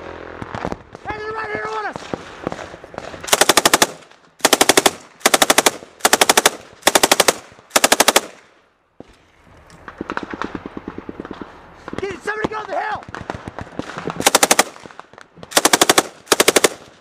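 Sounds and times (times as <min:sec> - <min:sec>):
machine gun firing bursts: 0:03.1 - 0:08.4, 0:13.1 - 0:14.9, 0:15.5 - 0:17.0.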